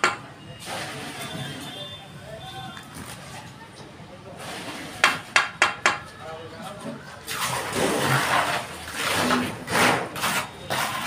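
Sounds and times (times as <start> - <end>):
trowel scraping mortar: 7.4 - 11.0.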